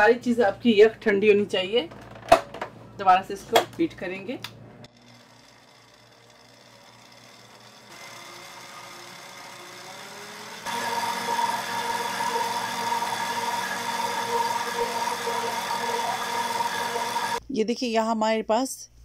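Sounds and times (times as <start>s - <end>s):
electric stand mixer whirring: 4.9s - 17.4s
whisk beating cream: 5.4s - 17.4s.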